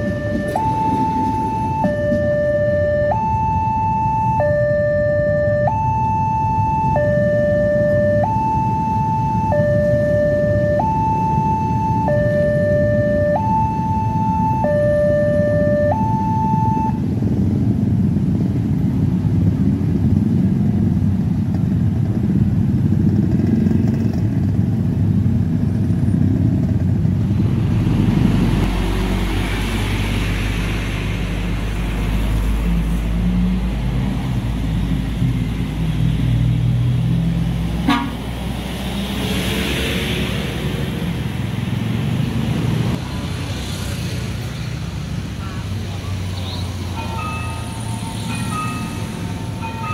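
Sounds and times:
level crossing warning bell: 0:00.0 - 0:17.0, 0:46.8 - 0:49.9
truck and cars rumbling past: 0:00.0 - 0:49.9
motorcycle engines running: 0:18.9 - 0:28.8
short horn toots: 0:37.8 - 0:38.2.

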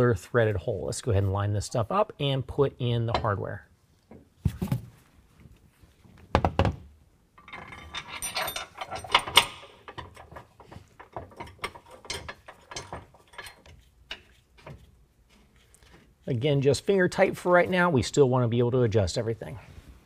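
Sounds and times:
metal bracket knocking and scraping: 0:07.4 - 0:14.9.

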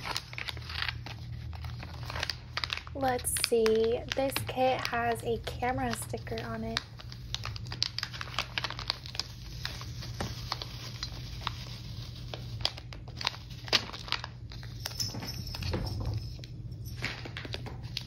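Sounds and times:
plastic packaging crinkling: 0:00.0 - 0:18.0.

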